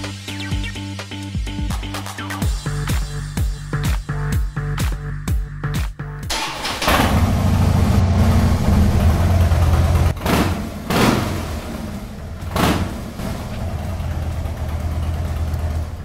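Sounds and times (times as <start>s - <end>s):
motorcycle engine running: 6.6s - 16.0s
motorcycle throttle blips: 6.8s - 16.0s.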